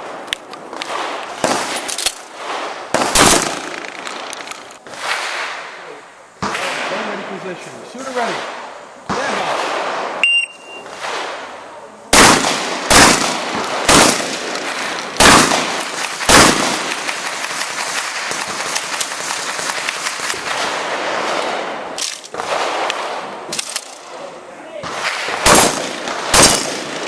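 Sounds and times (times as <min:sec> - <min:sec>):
shotgun blasts: 0:00.8 - 0:05.6, 0:08.0 - 0:10.2, 0:10.8 - 0:11.5, 0:12.1 - 0:23.9, 0:24.8 - 0:27.0
shot timer beep: 0:10.2 - 0:10.8.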